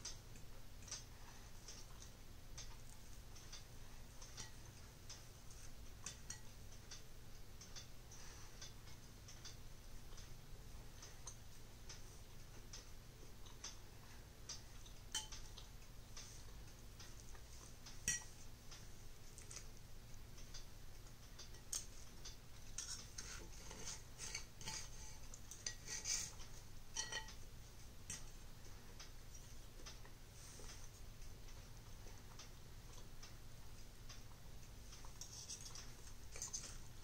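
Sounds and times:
cutlery clinking on a ceramic plate: 18.1 - 18.3, 27.0 - 27.4.

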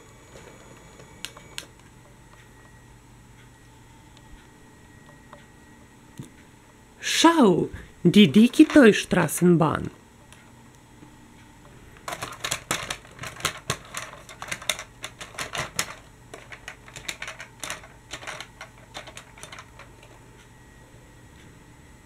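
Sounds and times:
plastic toy clattering on rails: 12.1 - 20.2.

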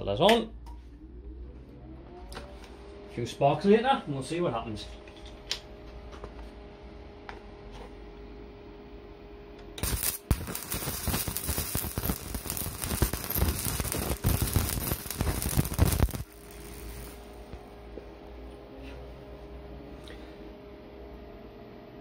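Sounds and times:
steady welder hum: 8.0 - 20.0
welding arc crackling: 9.8 - 17.8.

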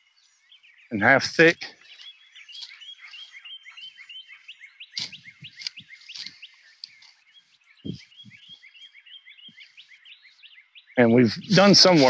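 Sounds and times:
footsteps crunching dry leaves: 1.8 - 8.8.

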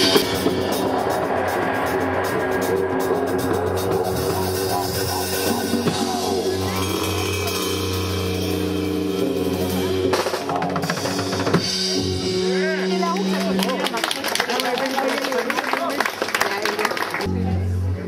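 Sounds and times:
cymbals ringing: 5.8 - 14.0.

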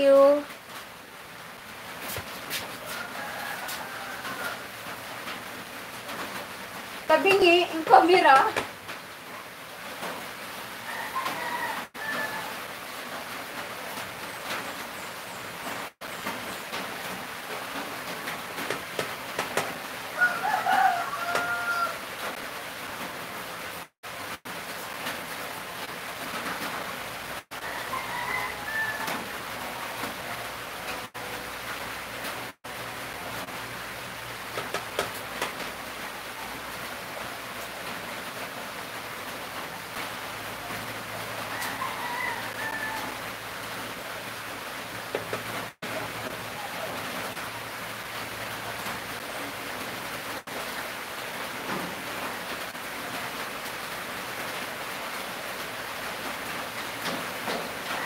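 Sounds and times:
rooster crowing: 2.8 - 4.9, 10.8 - 12.7, 20.1 - 22.3, 27.5 - 30.5, 41.2 - 43.5, 57.5 - 58.0.

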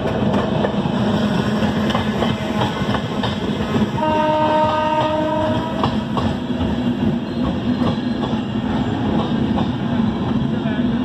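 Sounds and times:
train wheels clacking over rail joints: 0.0 - 10.4
train horn: 3.9 - 6.0.

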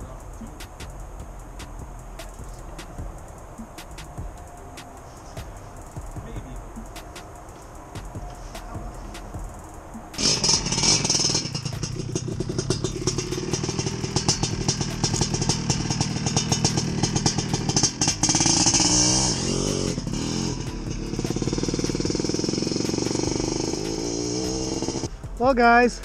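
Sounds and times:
dirt bike engine running and revving: 8.0 - 25.3.

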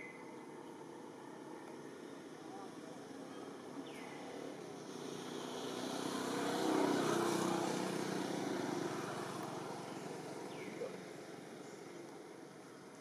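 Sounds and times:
passing motor engine: 4.8 - 11.5.

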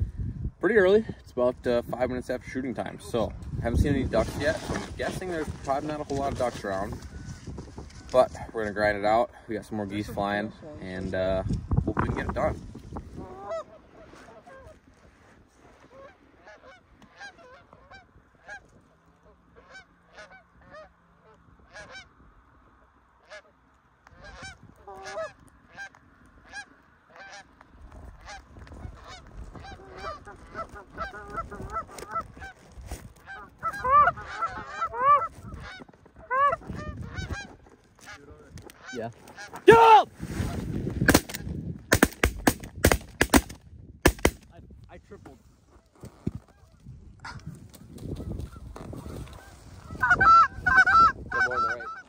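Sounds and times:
geese honking: 13.2 - 15.0, 15.7 - 22.2, 23.2 - 39.8, 48.1 - 52.0
sharp cracks: 41.0 - 44.6.

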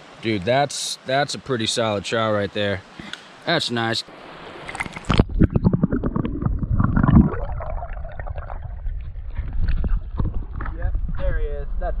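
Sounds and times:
underwater stream gurgling: 4.2 - 11.2
underwater clicks and knocks: 8.9 - 11.2.

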